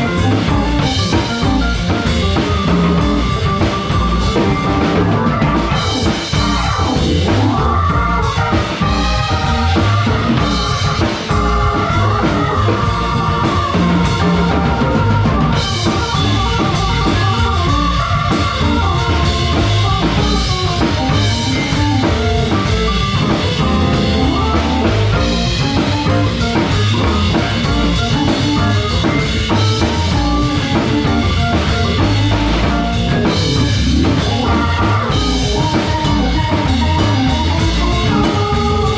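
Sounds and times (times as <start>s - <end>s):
drum kit: 0.0s - 38.9s
electric bass: 0.0s - 38.9s
electric guitar: 0.0s - 38.9s
keyboards: 0.0s - 38.9s.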